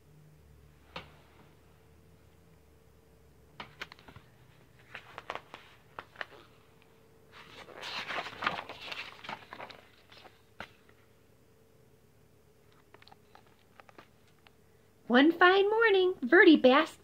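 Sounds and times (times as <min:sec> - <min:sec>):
paper pages rustling: 0:03.6 - 0:06.6, 0:07.3 - 0:11.0.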